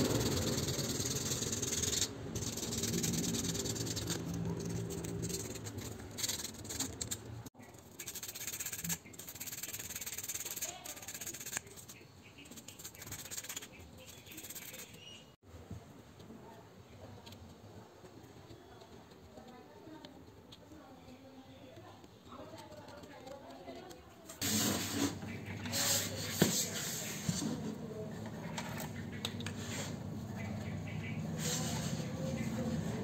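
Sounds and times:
light metal scraping: 31.0 - 33.0.

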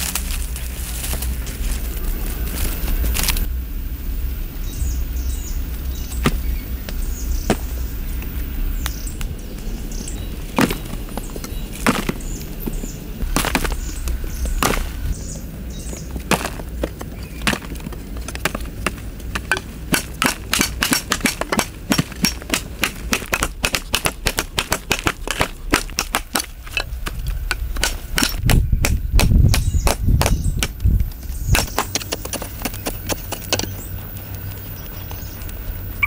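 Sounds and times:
low rumble: 0.0 - 19.9
hand tools striking stony earth: 6.1 - 7.8, 10.5 - 34.0.

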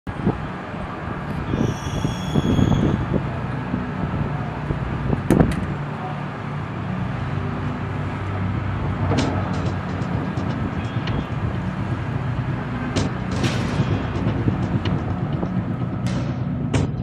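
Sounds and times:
road traffic rumble: 0.0 - 17.0
short high-pitched squeal: 1.5 - 3.0.

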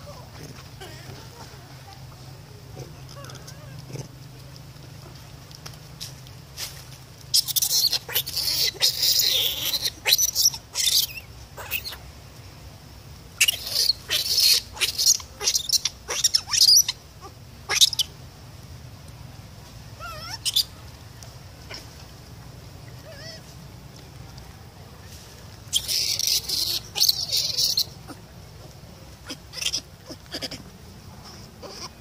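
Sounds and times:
soft rising and falling monkey calls: 0.0 - 5.4, 7.3 - 12.1, 13.4 - 18.2, 20.0 - 21.0, 22.8 - 23.6, 25.6 - 32.0
infant monkey screaming: 3.0 - 4.1, 7.3 - 12.0, 13.4 - 18.1, 20.0 - 20.7, 23.0 - 23.5, 25.7 - 28.2, 29.2 - 32.0.

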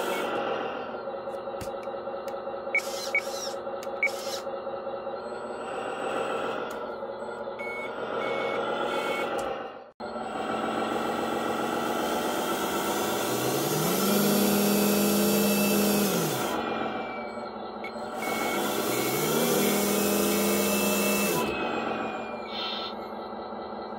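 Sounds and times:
diesel truck engine running: 0.0 - 23.9
reversing beeps: 2.7 - 4.4, 7.2 - 9.4, 16.9 - 23.1.

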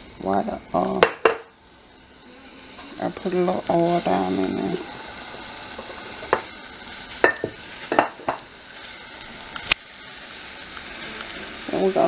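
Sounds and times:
chicken wings sizzling in oil: 0.0 - 12.0
utensil knocking against a pot: 1.0 - 1.5.

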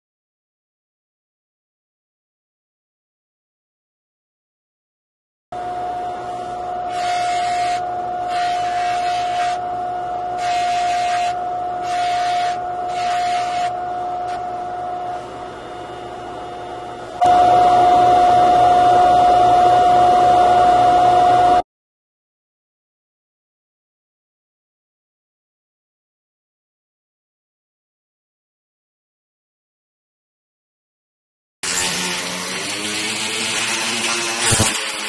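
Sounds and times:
polishing motor humming: 5.6 - 20.7, 31.6 - 35.0
buffing wheel rasping: 6.1 - 9.6, 10.3 - 15.3, 31.6 - 35.0.

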